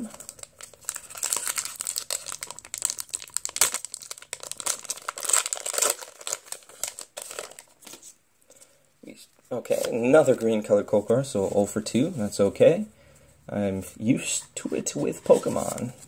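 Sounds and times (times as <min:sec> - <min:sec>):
foil wrapper crinkling: 0:00.0 - 0:08.0.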